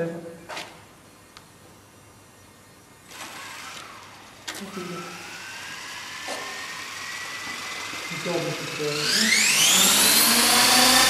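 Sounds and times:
helicopter motor and rotor whine: 3.1s - 11.0s.

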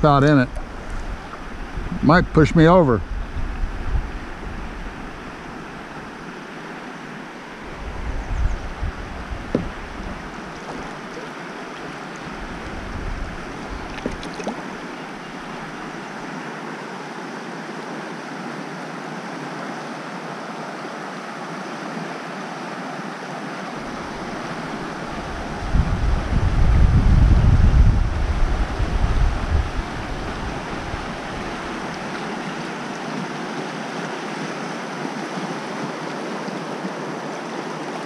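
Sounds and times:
wind buffeting microphone: 0.0s - 6.2s, 7.6s - 16.0s, 23.8s - 32.3s
river water rushing: 0.0s - 38.0s.

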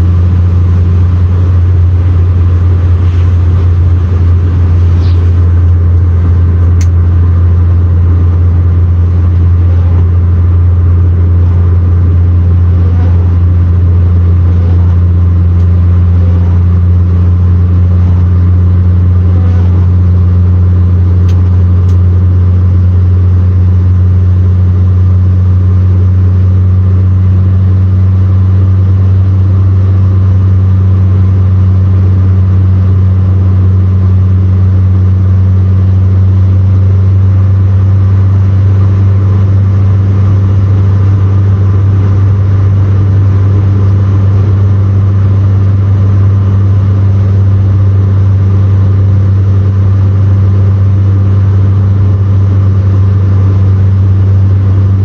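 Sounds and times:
tyre noise on wet road: 0.0s - 21.9s
car engine drone: 0.0s - 55.0s.

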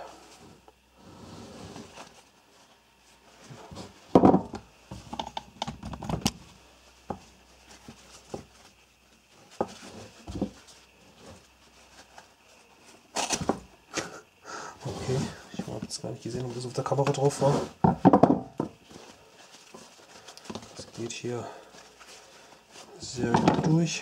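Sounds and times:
knocks on wooden tabletop: 4.1s - 4.6s, 17.8s - 18.7s
webbing rustling: 6.4s - 13.9s, 18.8s - 24.0s.

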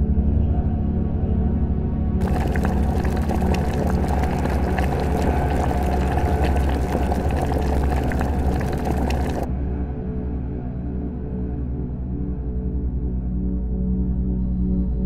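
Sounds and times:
hissing with crackles and pops: 2.2s - 9.5s.

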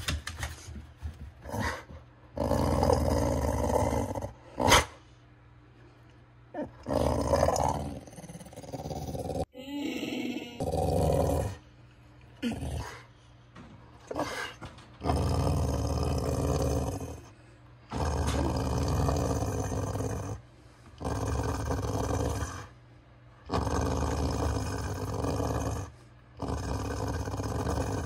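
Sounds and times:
dog growling: 1.4s - 5.0s, 6.6s - 11.7s, 12.4s - 13.1s, 14.1s - 17.3s, 17.9s - 20.4s, 21.0s - 22.7s, 23.4s - 28.0s.

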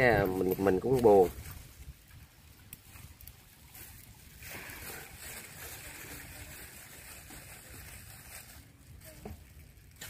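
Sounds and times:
even hiss: 3.7s - 9.4s.

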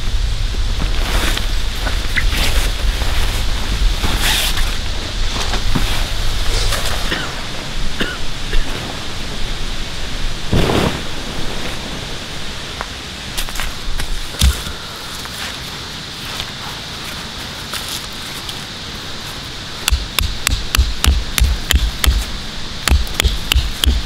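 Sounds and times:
tent fabric rustling: 0.7s - 7.8s, 10.4s - 14.3s.

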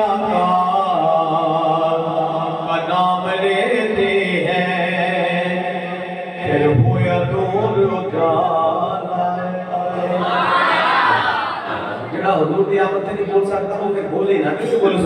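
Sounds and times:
man singing into a microphone: 0.0s - 10.2s.

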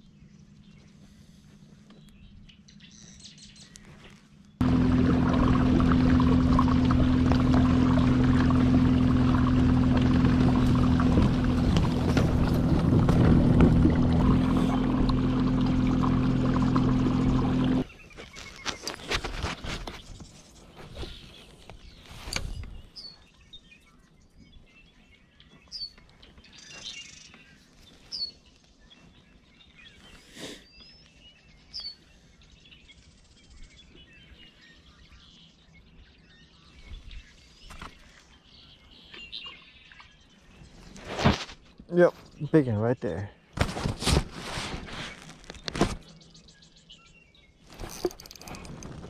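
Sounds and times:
bird chirping: 0.0s - 4.6s, 19.8s - 41.0s, 45.1s - 48.7s.

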